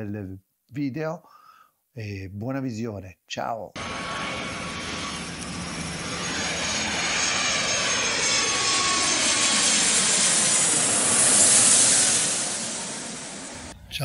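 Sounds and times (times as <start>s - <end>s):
jet aircraft passing: 3.8s - 13.8s.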